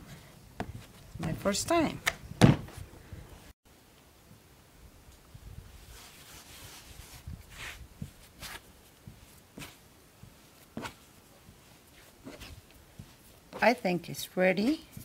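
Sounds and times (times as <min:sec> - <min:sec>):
hands kneading bread dough: 0:05.7 - 0:15.0
soft thumps of dough: 0:09.0 - 0:13.8.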